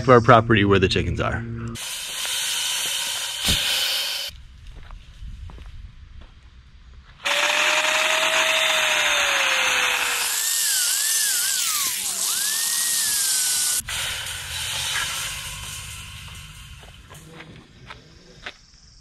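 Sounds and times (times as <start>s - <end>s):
angle grinder cutting steel wire: 1.8s - 4.4s, 7.2s - 17.7s.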